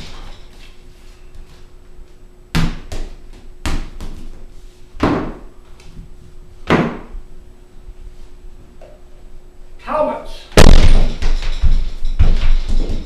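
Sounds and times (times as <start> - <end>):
knocks on hardwood floor: 10.6 - 13.0.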